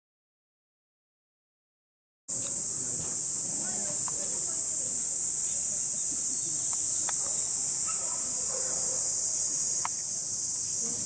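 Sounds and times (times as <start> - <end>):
cicadas droning: 2.3 - 11.0.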